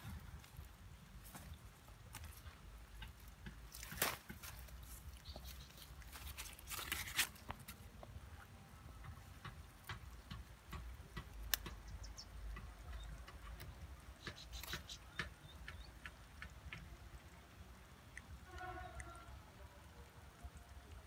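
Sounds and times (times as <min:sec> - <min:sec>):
twigs and leaves crackling: 0:00.0 - 0:08.5.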